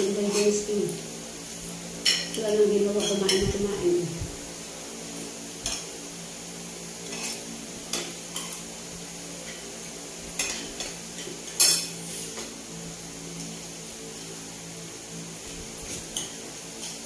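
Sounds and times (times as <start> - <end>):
steady low hum: 0.0 - 17.0
cutlery clinking on a dish: 7.1 - 8.6, 10.4 - 12.0.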